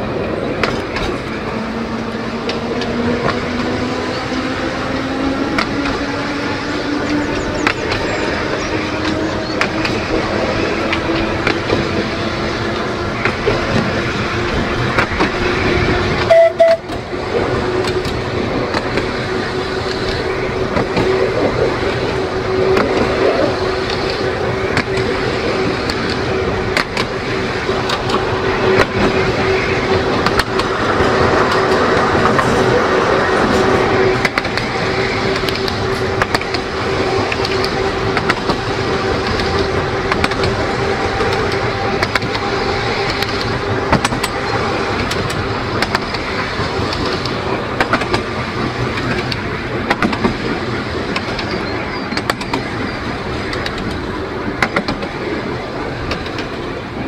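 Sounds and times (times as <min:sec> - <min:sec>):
electric tram whine: 0:00.0 - 0:57.0
wheels clicking on track: 0:00.0 - 0:57.0
brief loud tone: 0:16.3 - 0:16.8.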